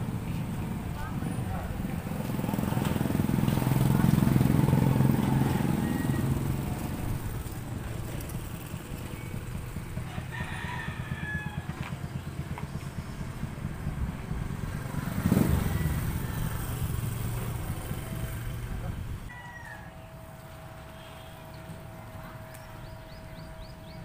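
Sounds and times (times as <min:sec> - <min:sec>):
low engine rumble: 0:00.0 - 0:24.0
rooster crowing: 0:05.0 - 0:06.8, 0:10.0 - 0:11.8, 0:15.2 - 0:17.2, 0:19.3 - 0:20.2.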